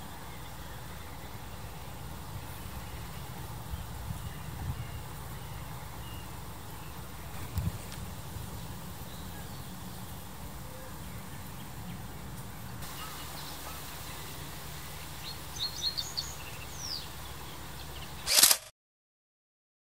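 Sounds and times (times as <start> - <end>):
faint hiss: 0.0 - 18.6
bird chirps: 12.8 - 18.6.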